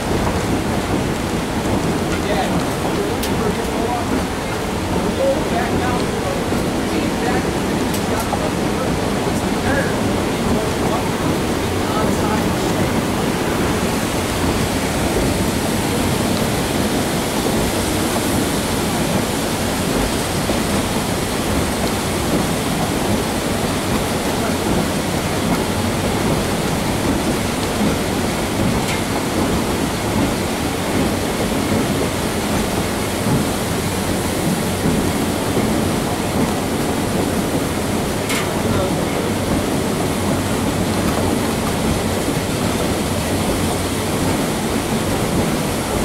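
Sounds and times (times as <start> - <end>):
train wheels rumbling on rails: 0.0 - 46.0.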